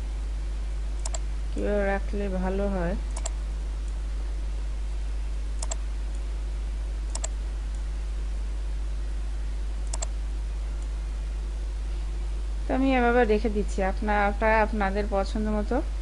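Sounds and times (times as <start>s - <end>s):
low electrical hum: 0.0s - 16.0s
mouse button clicking: 5.6s - 5.8s, 7.1s - 7.3s.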